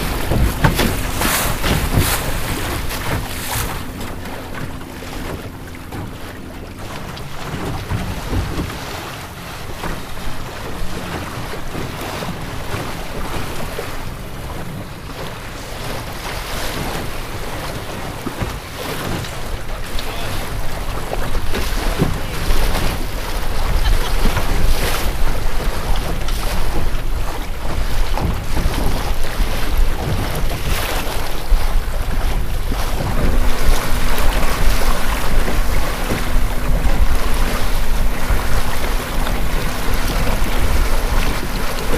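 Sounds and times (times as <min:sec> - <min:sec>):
wind buffeting microphone: 0:00.0 - 0:19.9, 0:20.5 - 0:41.9
water splashing along boat hull: 0:00.0 - 0:41.9.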